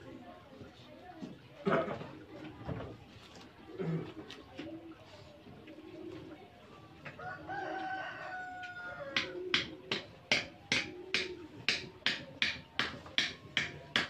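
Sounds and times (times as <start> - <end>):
rooster crowing: 7.2 - 9.2.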